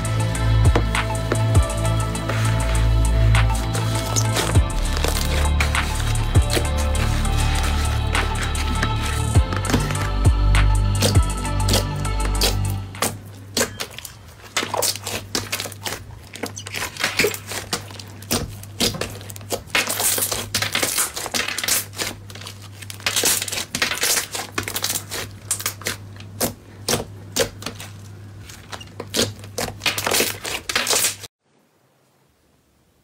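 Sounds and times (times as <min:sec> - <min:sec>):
steady low hum: 0:00.0 - 0:14.6
slime crackling and popping: 0:11.0 - 0:31.3.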